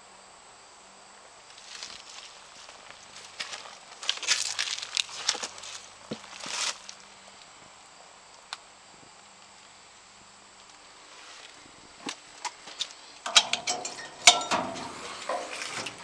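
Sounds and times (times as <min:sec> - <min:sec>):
footsteps crunching on dry leaves: 0:01.5 - 0:07.1.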